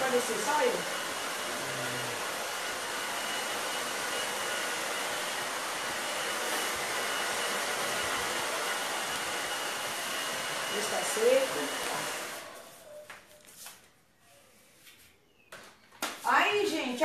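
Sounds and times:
hair dryer blowing air: 0.0s - 12.8s.

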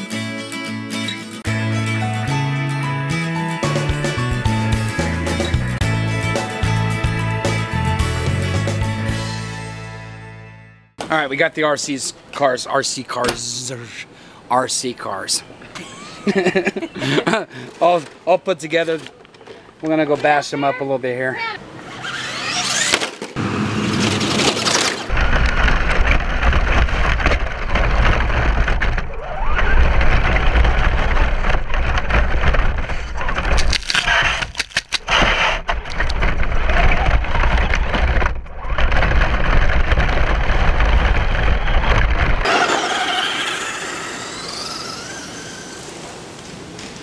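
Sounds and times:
distant rc truck motor whining: 21.6s - 36.0s, 36.6s - 46.3s
jolting noise: 21.9s - 45.9s
wind rumble: 25.1s - 34.4s, 35.1s - 42.5s.

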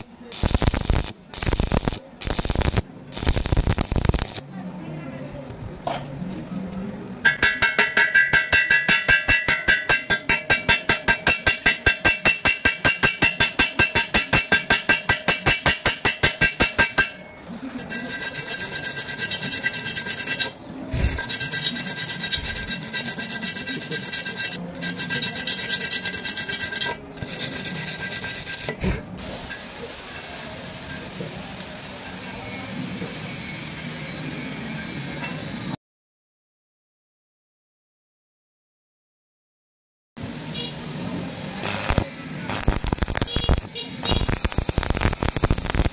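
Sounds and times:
wire brush scrubbing metal: 0.0s - 4.4s, 7.3s - 29.0s, 41.6s - 45.9s
metal ringing: 7.2s - 17.4s.

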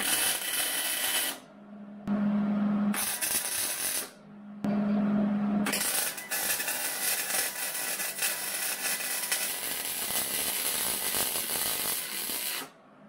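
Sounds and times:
welder arc crackling: 0.0s - 1.4s, 3.0s - 4.1s, 5.7s - 12.7s.

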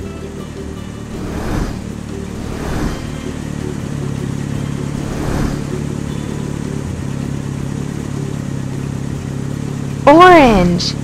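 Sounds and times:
low motor hum: 0.0s - 11.0s
short whooshes: 1.1s - 3.5s, 4.9s - 5.8s.

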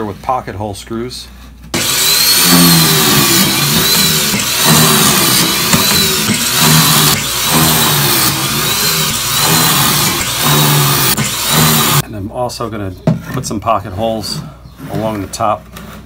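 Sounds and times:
drill motor drilling into plywood: 1.8s - 12.0s.

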